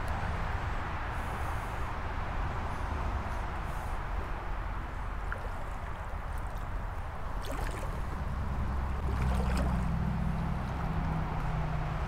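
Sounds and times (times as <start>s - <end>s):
water sloshing around wading legs: 4.8s - 11.6s.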